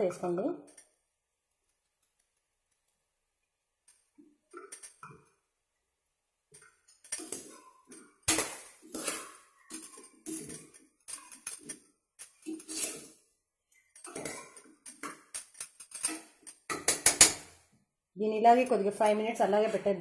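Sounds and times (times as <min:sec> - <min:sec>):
spatula scraping steel pot: 0:06.6 - 0:13.2, 0:13.8 - 0:17.6.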